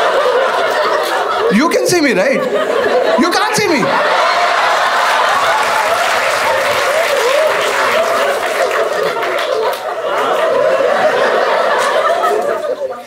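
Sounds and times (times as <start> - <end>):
people laughing: 0.0 - 13.0
audience clapping: 3.3 - 10.6.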